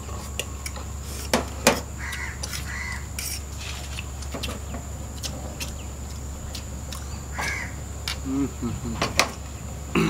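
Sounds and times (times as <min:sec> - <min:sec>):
steady low hum: 0:00.0 - 0:10.0
bird calling: 0:01.9 - 0:03.2, 0:03.8 - 0:10.0.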